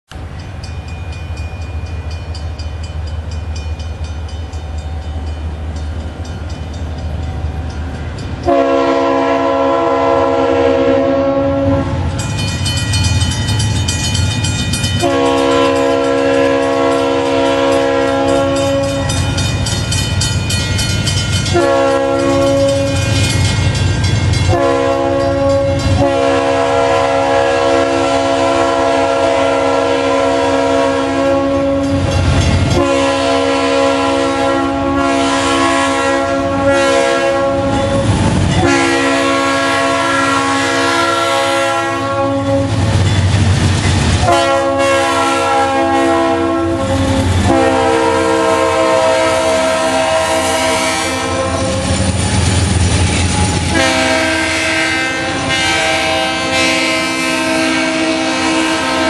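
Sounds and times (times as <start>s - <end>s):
crossing bell dinging: 0.1s - 10.7s, 11.8s - 41.5s, 42.4s - 59.0s
low rumble of locomotive: 0.1s - 59.0s
train air horn blasts: 8.4s - 12.2s, 15.0s - 19.3s, 21.4s - 23.3s, 24.4s - 43.0s, 44.2s - 52.1s, 53.2s - 59.0s.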